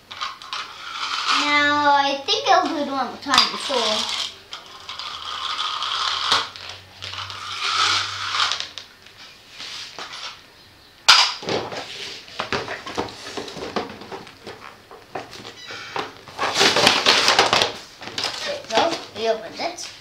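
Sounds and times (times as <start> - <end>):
packaging rustling and crinkling: 16.2 - 19.2.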